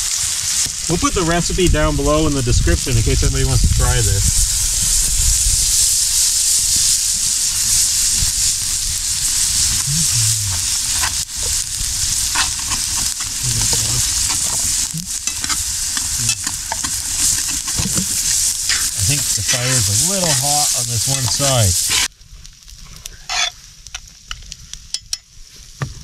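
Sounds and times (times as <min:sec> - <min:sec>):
meat sizzling in a skillet: 0:00.0 - 0:25.8
metal fork scraping a pan: 0:09.6 - 0:22.1, 0:23.3 - 0:23.6.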